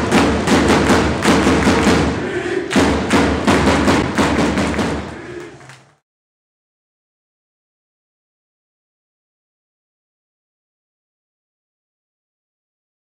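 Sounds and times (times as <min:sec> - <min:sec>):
loud thuds: 0:00.0 - 0:05.2
football supporters chanting: 0:00.1 - 0:06.0.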